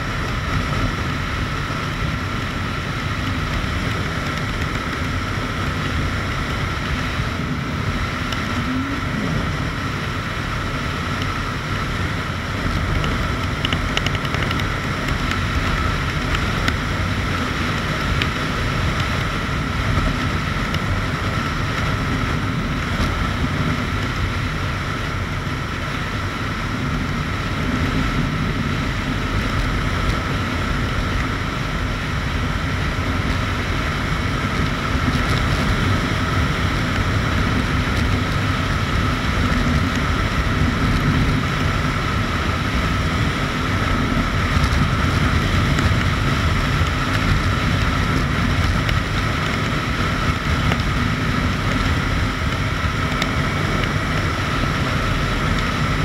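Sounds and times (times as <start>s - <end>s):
motorcycle engine cruising: 0.0s - 56.0s
wind noise: 0.0s - 56.0s.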